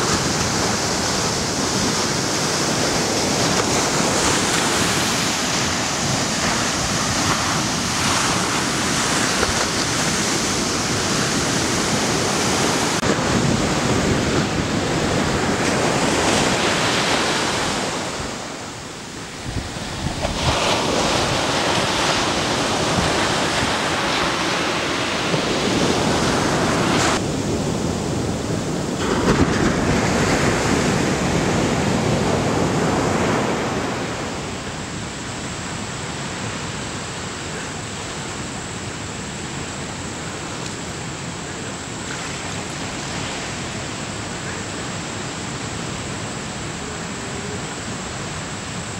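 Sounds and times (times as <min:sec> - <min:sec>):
ocean waves breaking on beach: 0:00.0 - 0:48.9.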